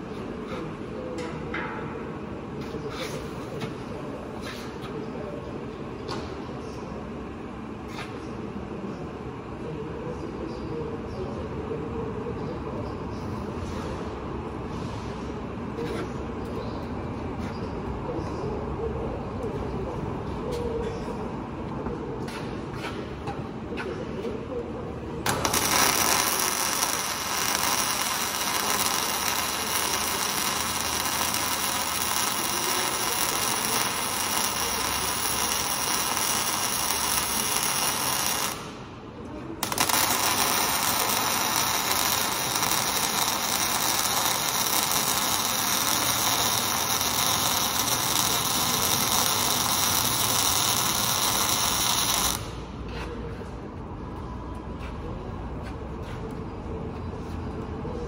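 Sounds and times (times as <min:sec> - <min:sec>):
welding arc crackling hiss: 0:25.2 - 0:38.8, 0:39.6 - 0:52.8.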